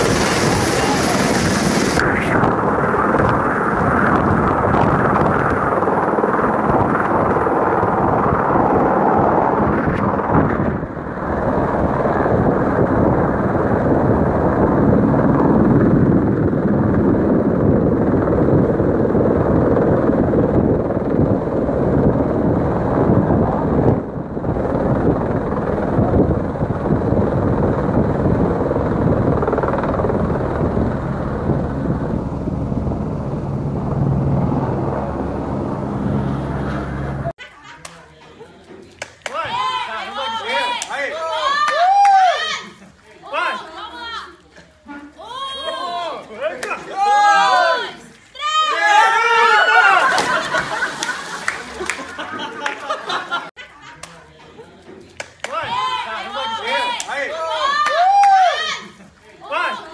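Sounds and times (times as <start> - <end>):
helicopter hovering: 0.0 - 37.4.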